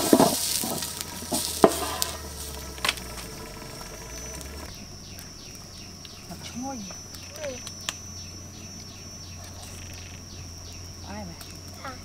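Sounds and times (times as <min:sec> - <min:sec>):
stew sizzling: 0:00.0 - 0:05.7.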